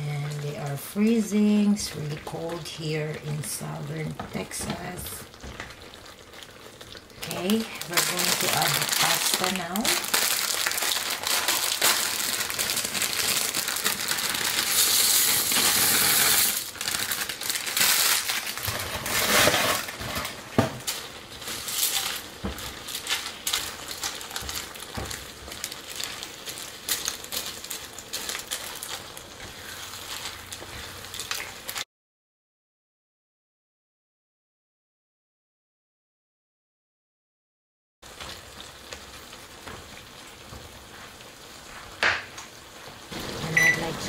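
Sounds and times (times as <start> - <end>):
plastic bag crinkling: 5.3 - 31.8
dry pasta pouring into pan: 6.0 - 31.8
spatula stirring in pan: 18.6 - 31.5.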